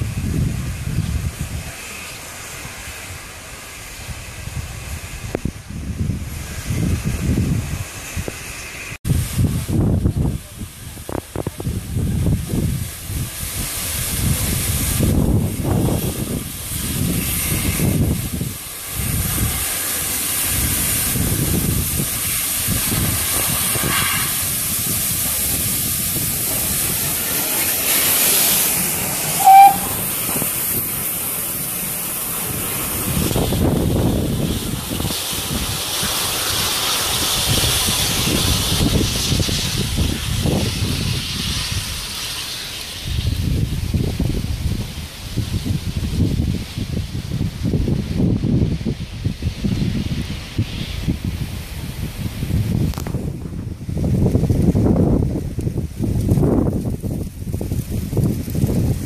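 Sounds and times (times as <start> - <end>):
steam locomotive hissing: 0.0 - 57.0
locomotive whistle: 29.2 - 30.4.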